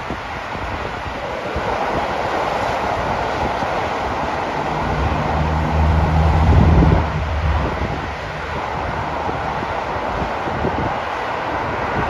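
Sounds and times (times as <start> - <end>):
road traffic noise: 0.0 - 12.0
wind on microphone: 0.0 - 12.0
low engine drone: 3.0 - 10.1.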